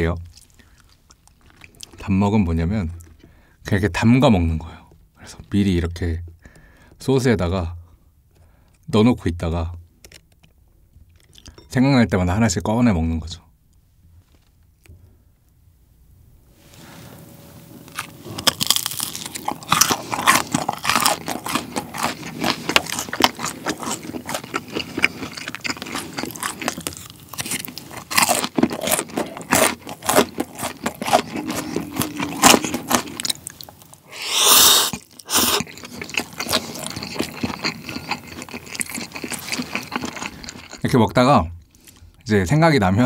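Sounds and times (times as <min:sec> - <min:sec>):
crunching and wet chewing: 0:00.0 - 0:02.1, 0:17.9 - 0:42.2.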